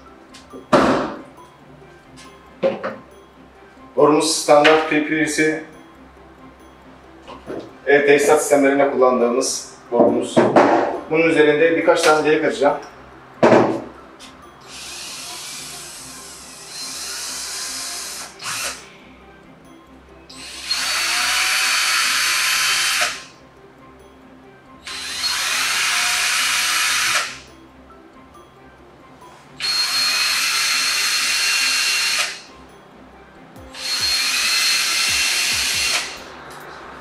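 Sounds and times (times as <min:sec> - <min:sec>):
drill boring through plastic pipe: 0:14.7 - 0:18.8, 0:20.4 - 0:23.3, 0:24.8 - 0:27.4, 0:29.6 - 0:32.5, 0:33.8 - 0:36.3.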